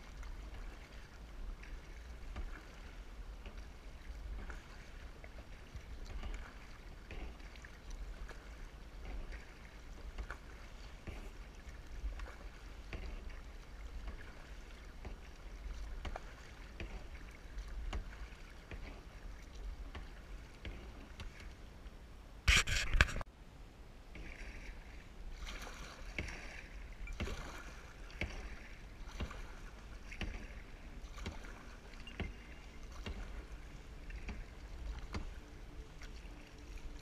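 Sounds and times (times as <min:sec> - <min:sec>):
paddle strokes in water: 0:00.0 - 0:23.3, 0:24.1 - 0:37.0
water lapping against hull: 0:00.0 - 0:23.3, 0:24.0 - 0:37.0.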